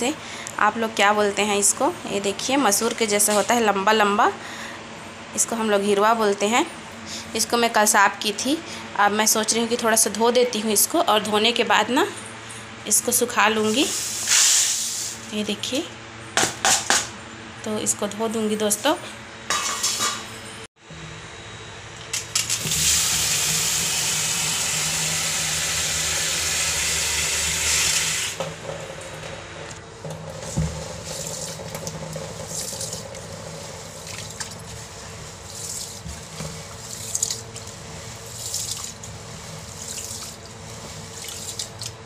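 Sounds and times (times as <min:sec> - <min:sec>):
tap water running into basin: 0:22.6 - 0:28.5, 0:30.0 - 0:42.0
water swishing and splashing: 0:30.4 - 0:42.0.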